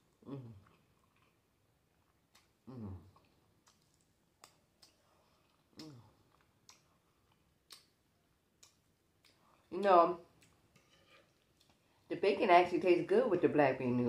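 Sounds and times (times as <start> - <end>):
person chewing and smacking: 0.1 - 9.6, 10.3 - 11.8.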